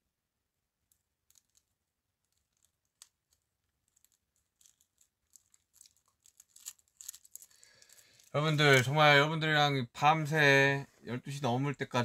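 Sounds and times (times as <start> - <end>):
faint small clicks and rustles: 0.8 - 9.0.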